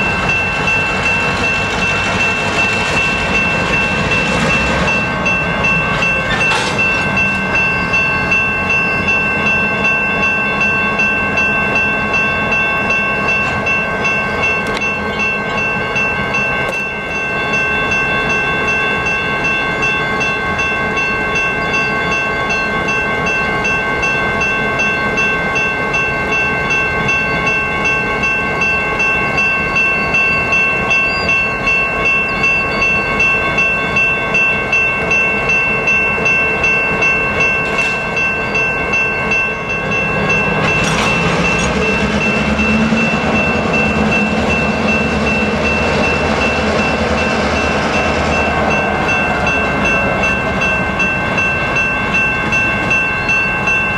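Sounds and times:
diesel locomotive engines: 0:00.0 - 0:53.9
railroad crossing bell ringing: 0:00.0 - 0:53.9
train wheels clicking over rail joints: 0:00.1 - 0:07.7, 0:39.9 - 0:53.0.

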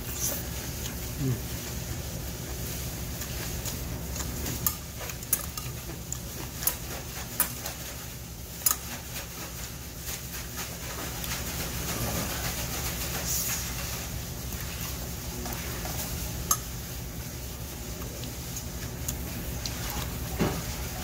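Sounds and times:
chewing: 0:02.4 - 0:09.0, 0:17.9 - 0:20.3.

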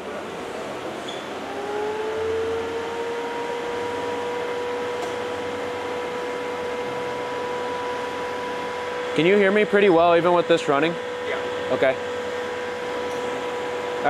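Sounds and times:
steady mechanical hum: 0:00.0 - 0:14.0
transmission dyno whine: 0:00.0 - 0:14.0.

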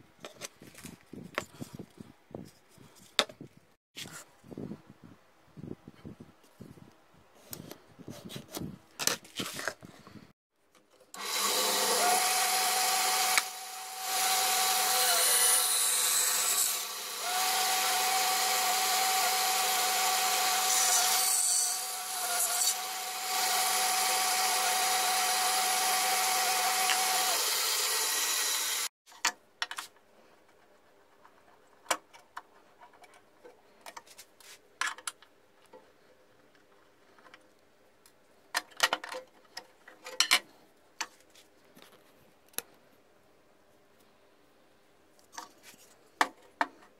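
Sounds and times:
bandsaw cutting plywood: 0:11.2 - 0:28.9.

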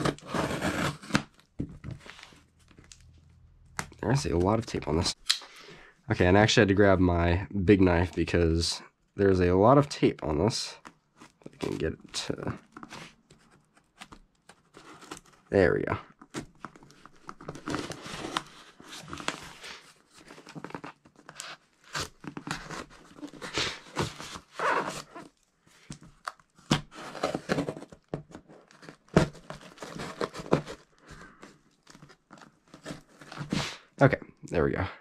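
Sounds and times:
knife slitting packing tape: 0:00.0 - 0:01.2
cardboard rustling: 0:00.0 - 0:03.2, 0:10.8 - 0:33.6.

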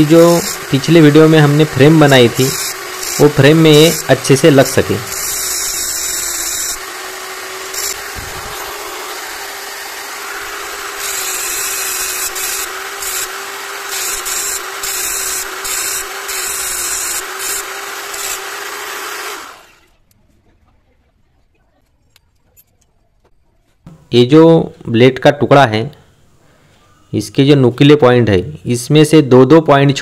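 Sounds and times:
grinding wheel on saw blade: 0:00.0 - 0:19.9
electric drill running: 0:00.0 - 0:20.0.

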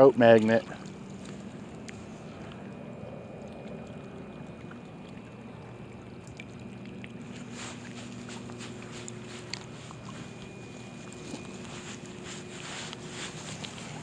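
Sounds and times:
small waves lapping at shore: 0:00.0 - 0:14.0
light clicks and rustles: 0:07.3 - 0:14.0.

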